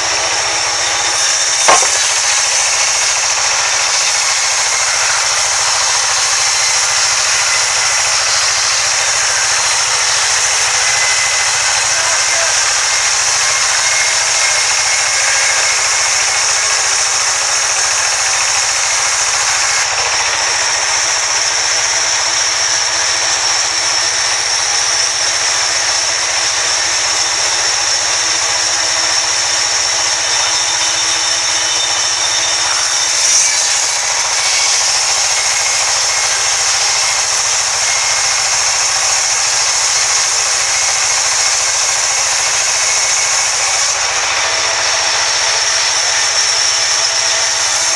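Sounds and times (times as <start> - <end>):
band saw cutting through log: 0.0 - 47.9
brief knock: 1.6 - 2.3.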